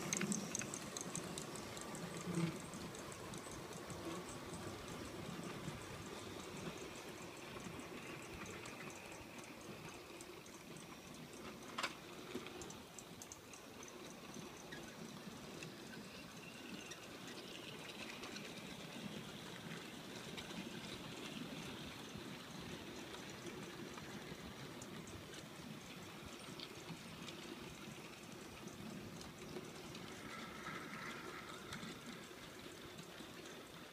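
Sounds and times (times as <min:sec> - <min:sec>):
model freight wagons rattling: 0:00.0 - 0:09.9
wheels ticking over rail joints: 0:00.0 - 0:33.9.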